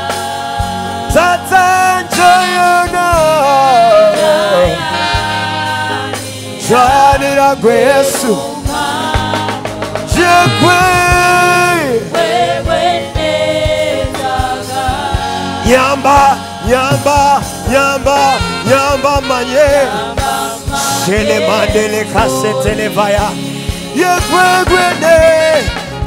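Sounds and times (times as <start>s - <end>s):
backing singers: 0.0s - 18.8s, 19.4s - 26.0s
band playing steady beat: 0.0s - 26.0s
man singing lead: 1.1s - 5.2s, 6.6s - 8.8s, 10.0s - 12.2s, 15.6s - 26.0s.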